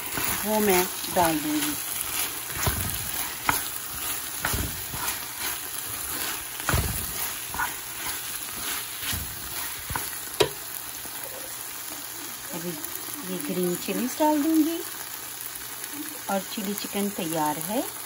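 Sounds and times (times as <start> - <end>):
utensil scraping a pan: 0.0 - 10.6
food sizzling in a pan: 0.0 - 18.0
utensil knocking against pan: 9.9 - 10.6.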